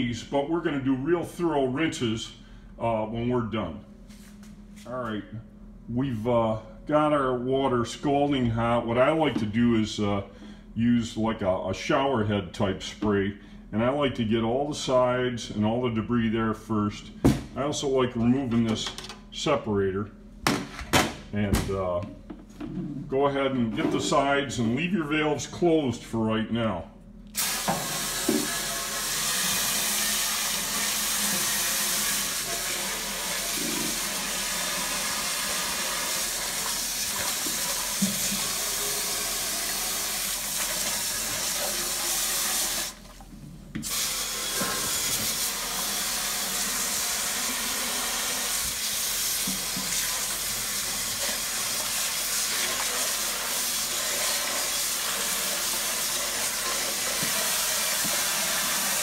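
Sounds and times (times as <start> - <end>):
water spray hissing on steel: 27.4 - 43.0, 43.8 - 59.0.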